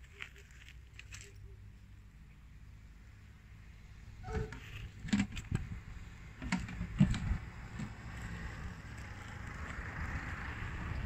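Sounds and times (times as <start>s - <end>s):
rustles: 0.0s - 1.7s.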